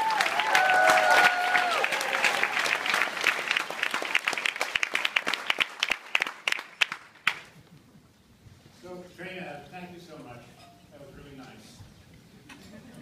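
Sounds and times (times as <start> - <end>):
audience applause: 0.0 - 7.5.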